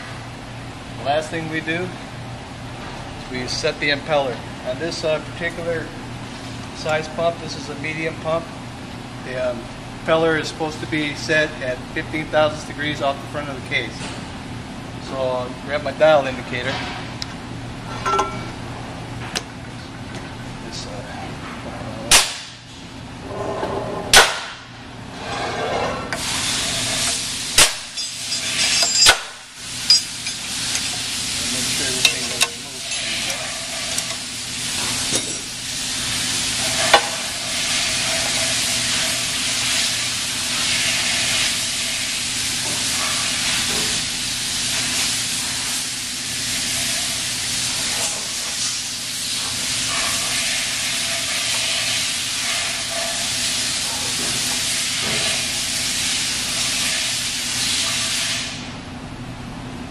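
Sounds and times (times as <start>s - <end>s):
metal clinks and knocks: 18.0s - 18.5s, 27.9s - 29.2s, 29.8s - 30.9s.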